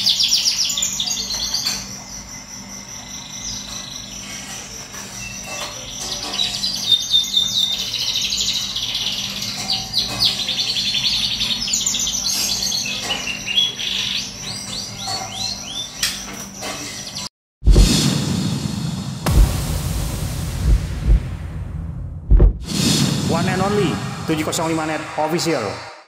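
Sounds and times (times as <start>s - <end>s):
canary singing trills: 0.0s - 16.0s.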